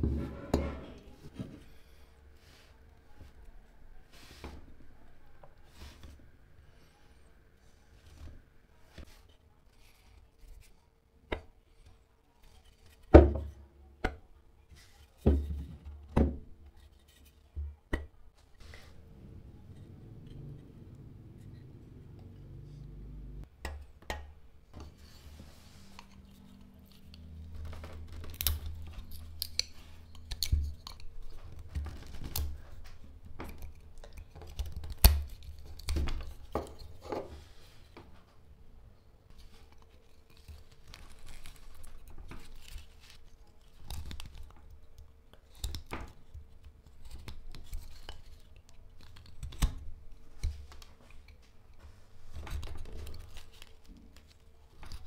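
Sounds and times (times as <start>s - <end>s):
wood snapping: 27.6s - 29.7s.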